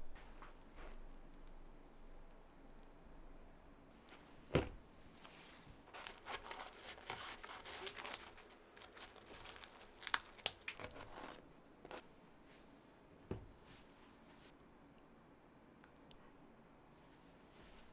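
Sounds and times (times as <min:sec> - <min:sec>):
scissors cutting crunchy pizza crust: 0:05.9 - 0:12.0.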